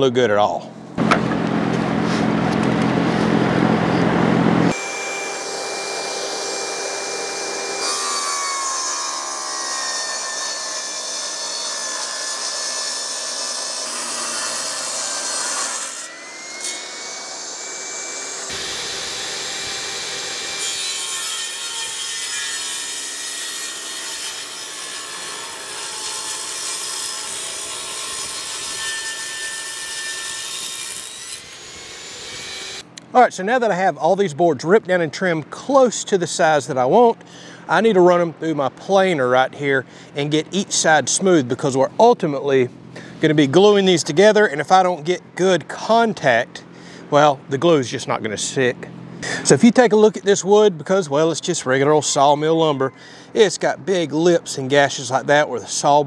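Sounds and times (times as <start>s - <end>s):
table saw cutting wood: 1.0s - 32.8s.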